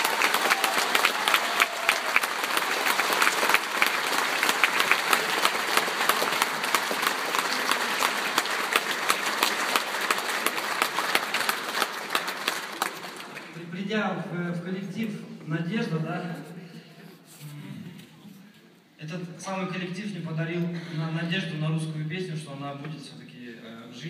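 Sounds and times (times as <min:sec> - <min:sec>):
audience applauding: 0:00.0 - 0:13.6.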